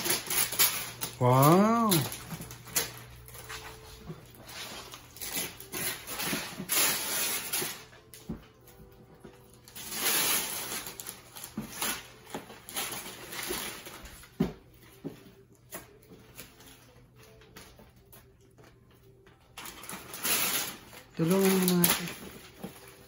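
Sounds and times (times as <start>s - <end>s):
wrapping paper tearing: 0.0s - 8.2s, 9.5s - 14.4s, 19.4s - 23.0s
paper rustling and crinkling: 0.0s - 23.0s.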